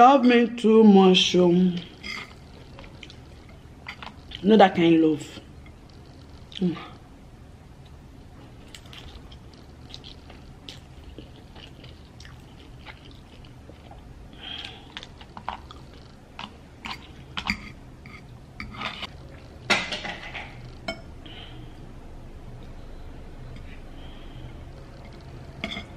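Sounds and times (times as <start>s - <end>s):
person chewing noodles: 1.9s - 4.4s, 7.8s - 19.5s.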